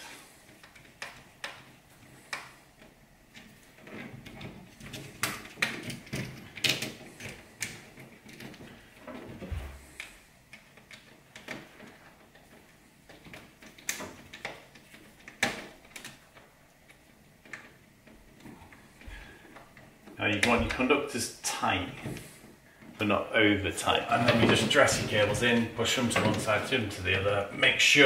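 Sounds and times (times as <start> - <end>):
small clicks and knocks: 0.3 - 20.9.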